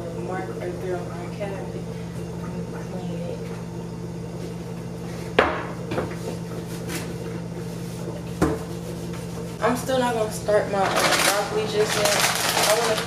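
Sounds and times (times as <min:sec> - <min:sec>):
low appliance hum: 0:00.0 - 0:13.0
knock on kitchen counter: 0:05.4 - 0:06.2, 0:08.4 - 0:08.6.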